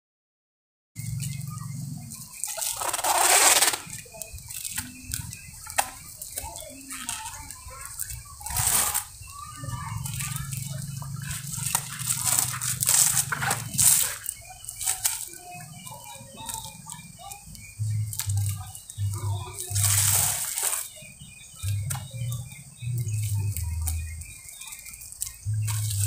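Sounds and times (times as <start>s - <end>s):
birds chirping: 1.0s - 26.0s
rope and bamboo poles rustling: 2.0s - 26.0s.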